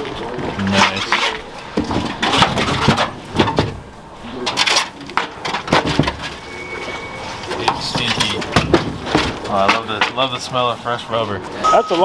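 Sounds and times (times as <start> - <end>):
low background noise: 0.0 - 12.0
irregular thumps and knocks: 1.7 - 3.8, 5.4 - 6.3, 7.6 - 10.2.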